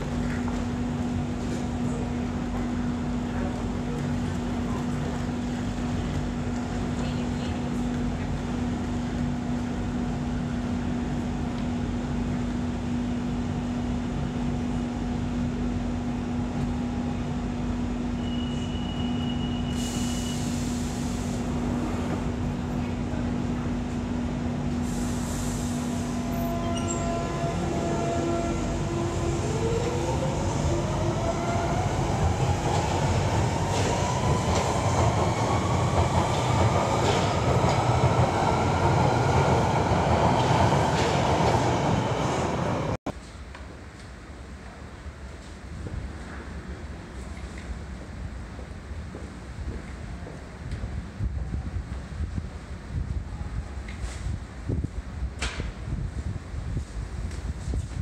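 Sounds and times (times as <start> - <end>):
train wheels rumbling on rail: 0.0 - 58.0
air hissing: 24.8 - 26.3.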